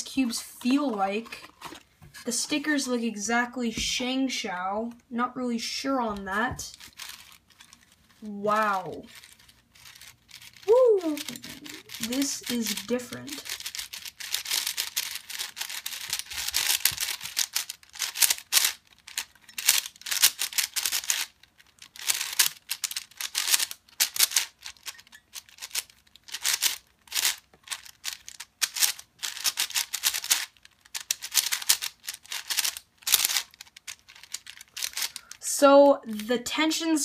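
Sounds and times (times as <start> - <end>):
plastic puzzle cube clicking: 9.1 - 35.4.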